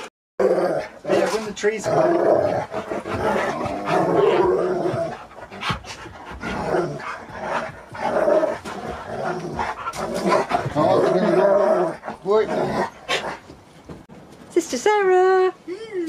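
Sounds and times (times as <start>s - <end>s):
dogs grumbling: 0.4s - 13.7s
dogs panting: 2.4s - 13.8s.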